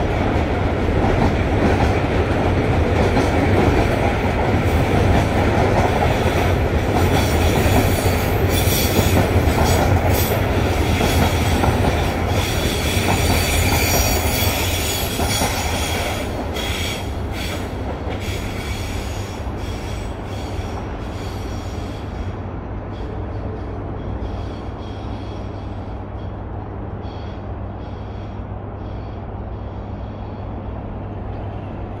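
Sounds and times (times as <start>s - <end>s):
freight train wheels on rails: 0.0s - 32.0s.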